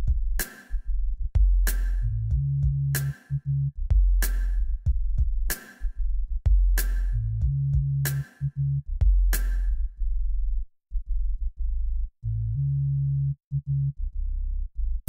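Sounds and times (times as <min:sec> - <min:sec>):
drum machine hits: 0:00.0 - 0:00.7, 0:01.4 - 0:03.3, 0:03.9 - 0:05.8, 0:06.5 - 0:08.4, 0:09.0 - 0:09.7
deep bass line: 0:00.0 - 0:15.0.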